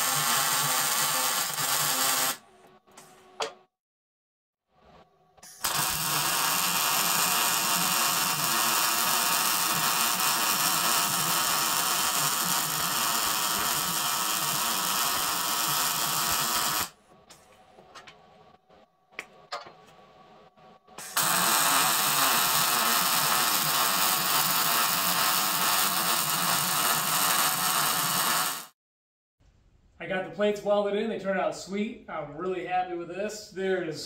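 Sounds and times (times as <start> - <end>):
welder crackling sizzle: 0.0 - 2.4, 5.4 - 17.0, 21.0 - 28.8.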